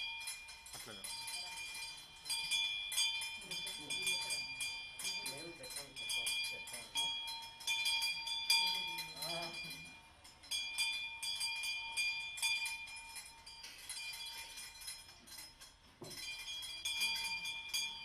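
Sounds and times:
metal bell ringing: 0.0s - 18.0s.

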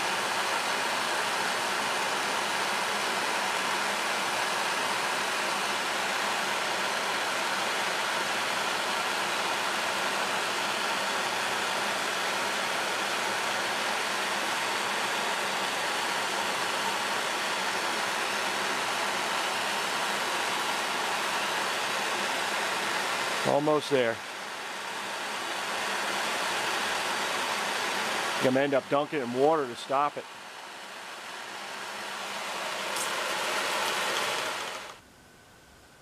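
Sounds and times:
propane torch hissing: 0.0s - 35.0s.

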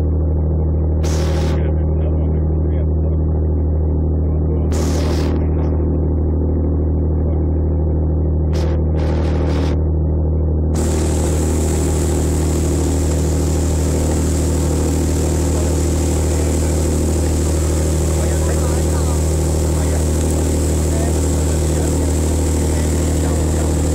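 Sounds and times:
ferry engine low drone: 0.0s - 23.9s
loud hiss: 1.0s - 1.6s, 4.7s - 5.4s, 10.8s - 23.9s.

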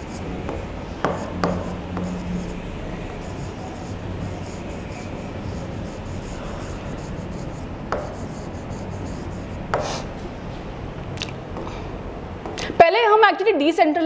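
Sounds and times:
stylus rubbing on screen: 0.0s - 10.2s
low steady hum: 0.0s - 12.8s
pen tapping on screen: 0.1s - 2.2s, 7.0s - 10.0s.

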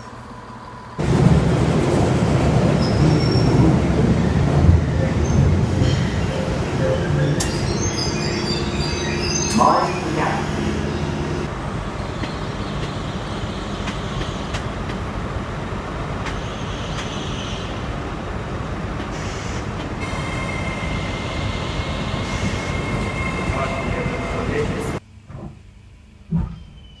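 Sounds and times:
train braking rush: 0.0s - 15.2s, 19.0s - 25.0s
high train whine: 0.0s - 25.0s
underground train whine: 0.0s - 27.0s.

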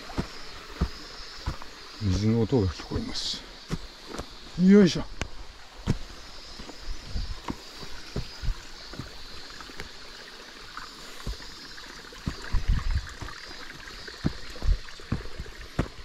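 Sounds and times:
mountain stream flowing: 0.0s - 16.0s
dull low thumps: 5.8s - 6.2s, 6.9s - 9.2s, 12.2s - 13.4s, 14.2s - 16.0s.

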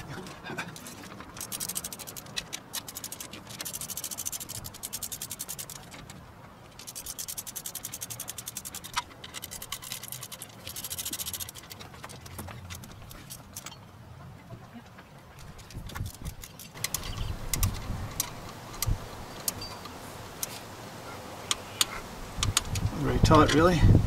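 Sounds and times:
ratchet wrench clicking: 1.4s - 5.9s, 6.8s - 11.8s, 15.6s - 20.5s.

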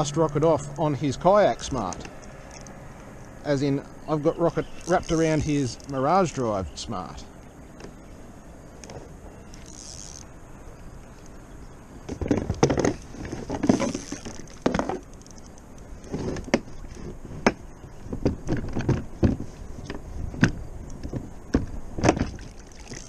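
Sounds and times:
knocks and rattles on plastic kayak: 12.0s - 15.1s, 16.0s - 23.0s.

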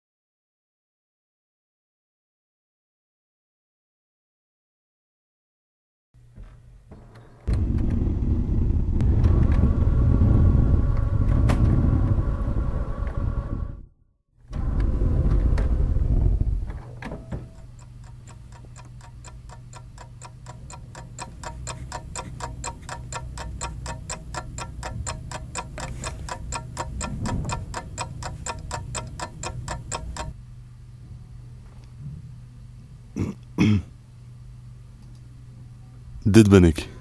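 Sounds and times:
loud low rumble: 7.5s - 13.8s, 14.5s - 16.8s
low steady hum: 14.5s - 37.0s
rapid mechanical ticking: 17.1s - 30.4s.

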